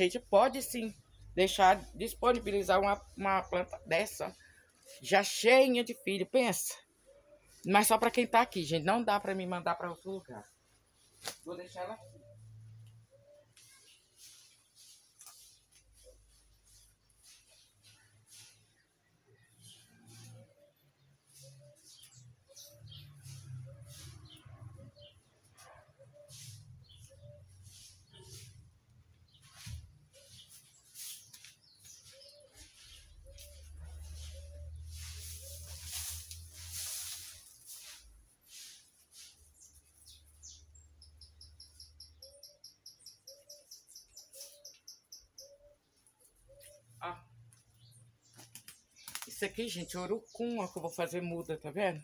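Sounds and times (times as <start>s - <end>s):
leaves rustling and scraping: 7.8s - 12.4s, 13.5s - 40.8s
dove cooing: 32.1s - 35.8s
bird chipping rapidly: 39.6s - 46.9s.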